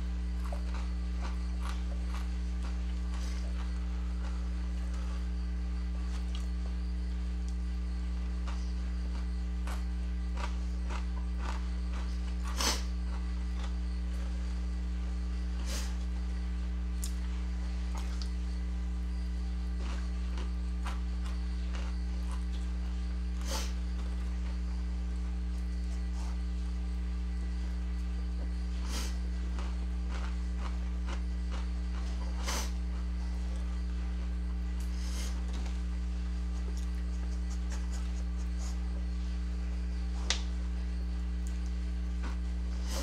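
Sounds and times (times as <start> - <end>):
low electrical mains hum: 0.0 - 43.0
chips crackling while chewed: 0.2 - 5.1, 8.3 - 14.0, 19.6 - 22.8, 29.5 - 33.2.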